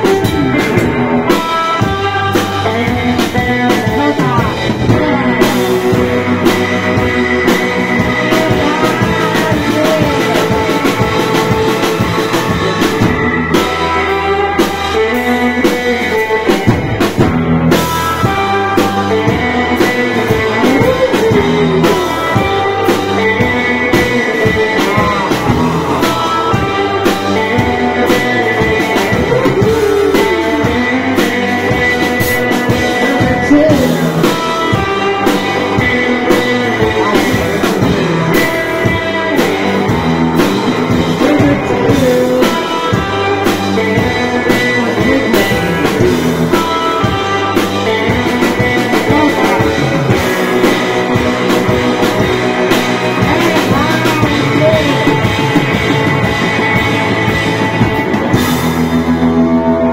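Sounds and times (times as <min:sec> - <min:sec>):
person singing: 0:00.0 - 0:58.6
drum kit: 0:00.0 - 0:59.9
electric guitars: 0:00.0 - 0:59.9.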